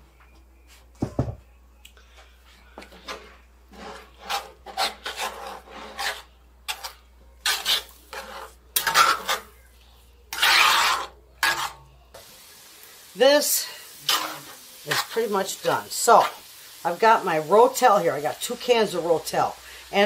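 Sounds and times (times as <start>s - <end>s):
metal spatula scraping skillet: 2.8s - 9.6s, 10.3s - 11.9s, 13.6s - 16.5s.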